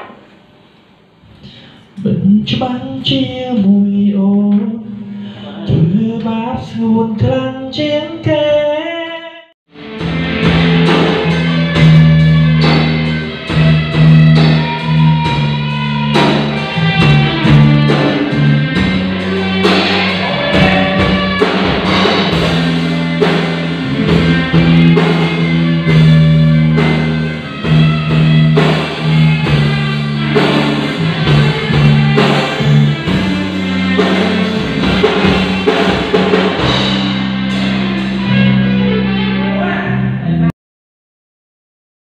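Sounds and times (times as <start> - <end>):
drum kit beating: 0.0 - 0.8, 9.7 - 39.4
guitar: 0.0 - 40.5
held low bass notes: 9.8 - 40.5.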